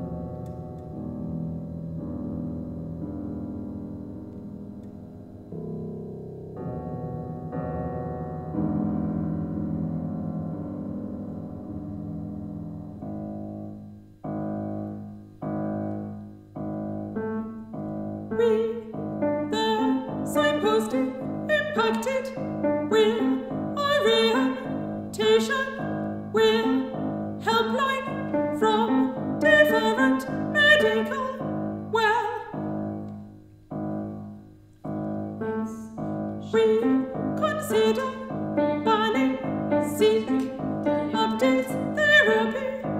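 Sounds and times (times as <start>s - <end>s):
piano chords: 0.0s - 42.9s
woman singing operatically: 18.3s - 32.6s, 36.4s - 42.9s.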